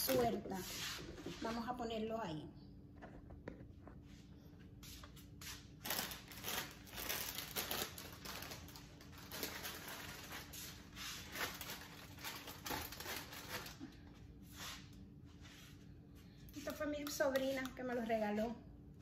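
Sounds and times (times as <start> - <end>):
plastic wrappers crinkling: 0.0 - 0.4, 5.8 - 14.0.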